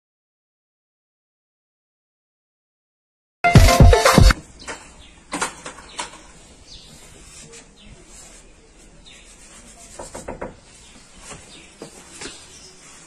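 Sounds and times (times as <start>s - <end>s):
soft scuffs and rubbing: 6.3s - 13.0s.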